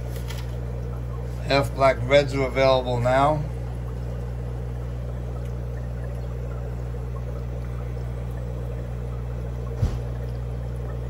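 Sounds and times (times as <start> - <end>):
aquarium filter humming: 0.0 - 11.0
water bubbling and trickling: 0.0 - 11.0
short thump: 9.7 - 10.2.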